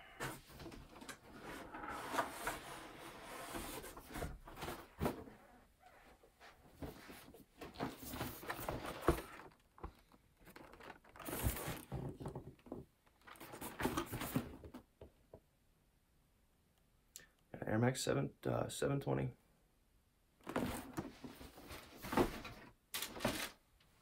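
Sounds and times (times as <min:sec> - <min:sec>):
rustling and scraping: 0:00.0 - 0:14.8, 0:20.4 - 0:23.6.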